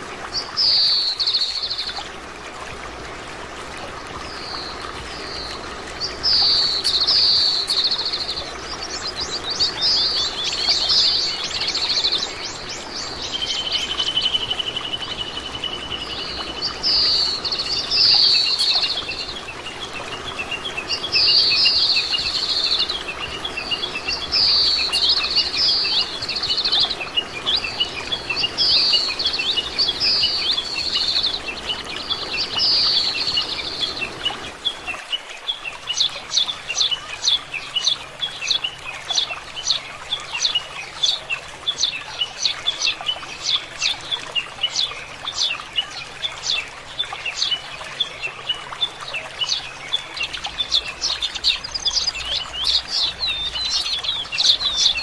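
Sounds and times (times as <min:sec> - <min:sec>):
finches twittering: 0:04.3 - 0:34.5
sparrows chirping: 0:06.0 - 0:34.5, 0:49.1 - 0:55.0.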